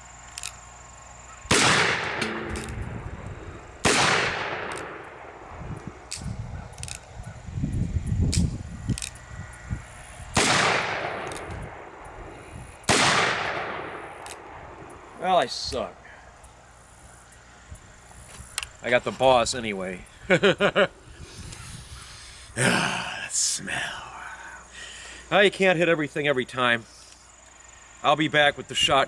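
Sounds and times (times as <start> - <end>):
revolver shots echoing: 1.5 - 2.9.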